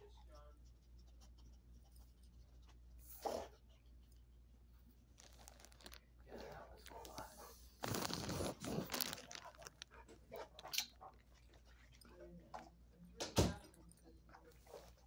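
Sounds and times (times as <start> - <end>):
faint clicks and crunches: 5.1 - 12.0.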